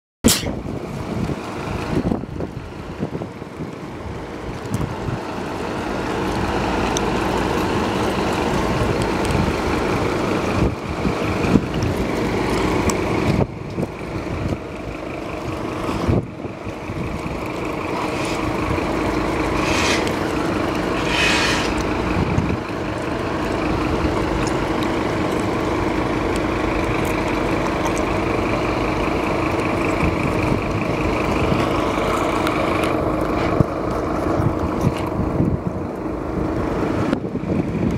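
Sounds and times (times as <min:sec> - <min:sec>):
short air hisses: 0:00.3 - 0:00.6, 0:19.6 - 0:20.2, 0:20.9 - 0:21.8
diesel engine idling: 0:00.3 - 0:37.9.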